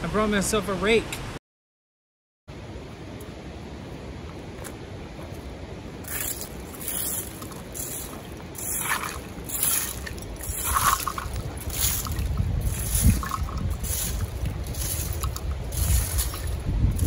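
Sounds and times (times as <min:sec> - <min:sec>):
rake scraping gravelly dirt: 0:06.0 - 0:17.0.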